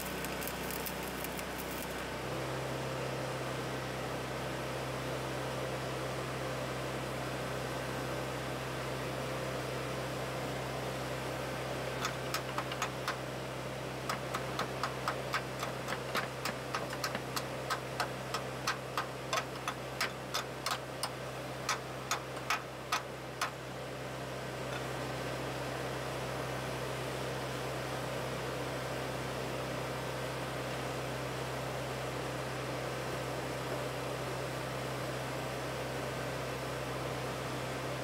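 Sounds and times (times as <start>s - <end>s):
steady hum and hiss: 0.0s - 38.0s
chipping hammer tapping metal: 12.0s - 13.3s, 14.0s - 23.6s.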